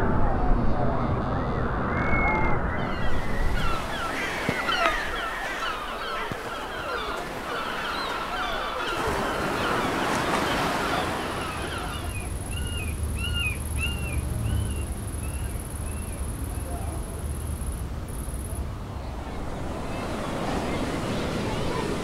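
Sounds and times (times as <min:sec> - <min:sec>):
surf rushing: 0:01.8 - 0:22.0
gulls squealing: 0:02.8 - 0:16.3.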